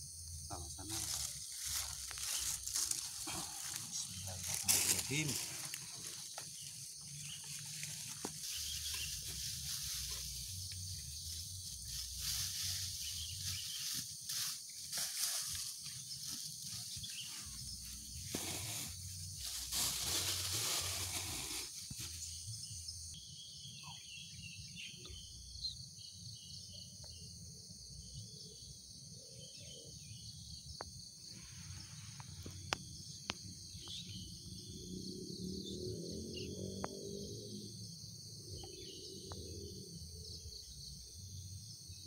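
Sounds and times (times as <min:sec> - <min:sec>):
faint insect chirps: 0:00.0 - 0:42.0
rustling: 0:07.4 - 0:22.4
faint bird chirps: 0:22.1 - 0:27.3.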